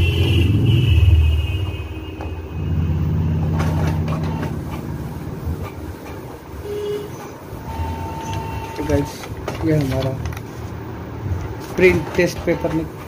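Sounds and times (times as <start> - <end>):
printer motor drone: 2.2 - 13.0
printer clicks and knocks: 11.4 - 13.0.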